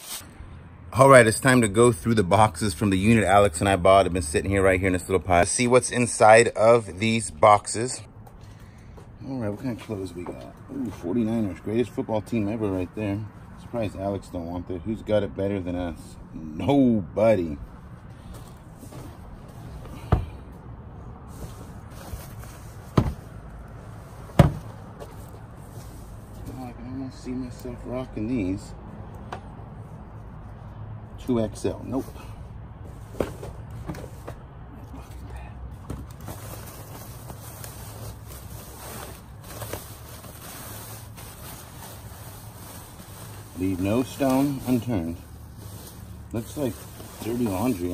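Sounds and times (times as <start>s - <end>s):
bags rustling and crinkling: 35.9s - 47.9s.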